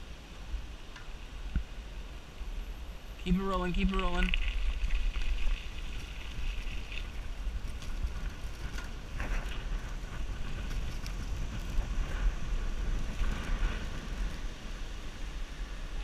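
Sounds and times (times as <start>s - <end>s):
wind rumbling on microphone: 0.0s - 16.0s
bicycle clicks and rattles: 3.9s - 15.1s.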